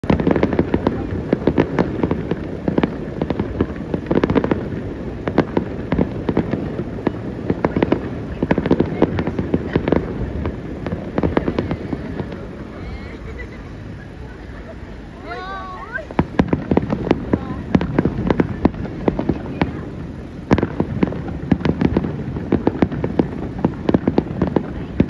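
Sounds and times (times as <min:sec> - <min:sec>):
continuous rumble: 0:00.0 - 0:25.0
fireworks booms and cracks: 0:00.0 - 0:25.0.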